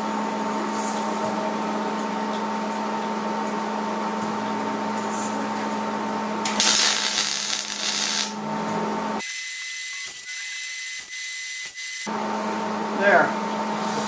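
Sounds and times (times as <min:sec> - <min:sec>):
steady shop hum: 0:00.0 - 0:14.0
thin high whine: 0:06.5 - 0:08.4
welder hissing crackle: 0:06.5 - 0:08.4, 0:09.7 - 0:12.1.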